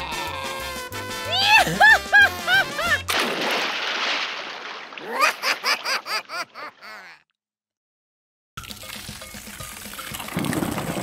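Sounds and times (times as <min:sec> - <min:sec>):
water splashing: 0:02.8 - 0:06.4.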